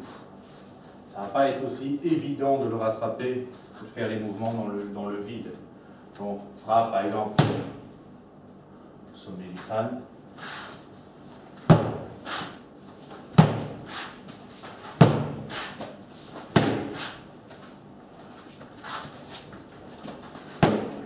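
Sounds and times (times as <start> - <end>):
nunchaku smacking rubber dummy: 11.7 - 12.6, 13.3 - 14.2, 14.9 - 15.9, 16.5 - 17.2, 20.5 - 21.0
nunchaku swish: 12.2 - 12.6, 13.4 - 15.9, 16.6 - 17.2.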